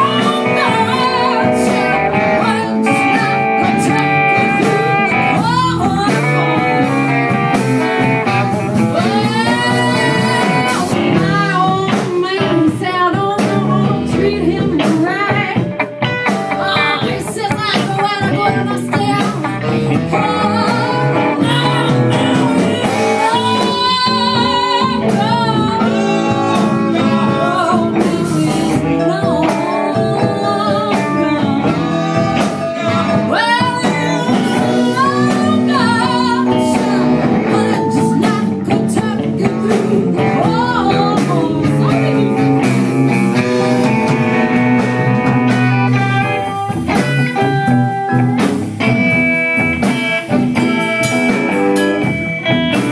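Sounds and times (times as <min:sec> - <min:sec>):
person singing with vibrato: 0:00.0 - 0:07.6, 0:08.6 - 0:15.7, 0:16.5 - 0:43.8
guitar: 0:00.0 - 0:52.9.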